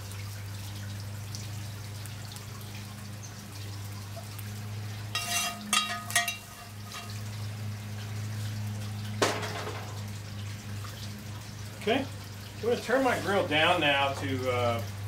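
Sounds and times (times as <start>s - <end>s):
steady low hum: 0.4s - 9.2s
metal spoon scraping skillet: 5.1s - 7.2s.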